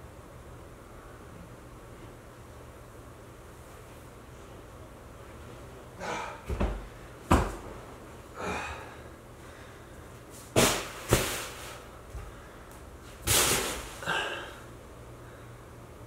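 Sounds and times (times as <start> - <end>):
person breathing: 8.4 - 10.2, 12.2 - 12.8, 14.0 - 15.8.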